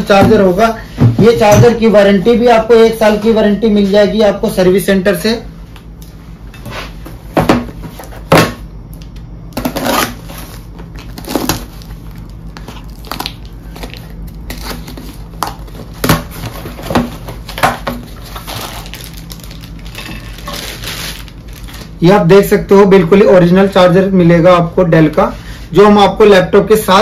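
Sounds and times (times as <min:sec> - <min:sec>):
sharp knocks on packaging: 0:07.4 - 0:08.6, 0:15.4 - 0:18.1
packaging crinkling: 0:09.6 - 0:22.0.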